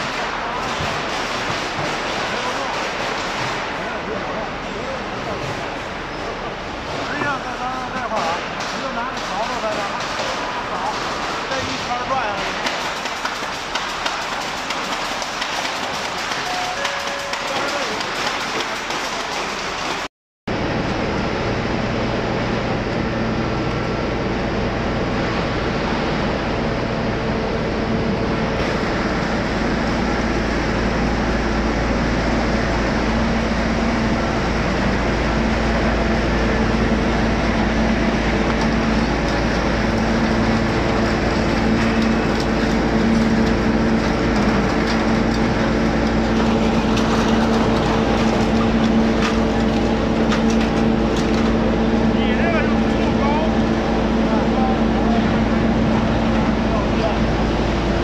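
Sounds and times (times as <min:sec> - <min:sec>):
sharp knocks and clatter: 0:00.0 - 0:03.8, 0:07.2 - 0:20.1
recycling machinery running: 0:00.0 - 0:58.0.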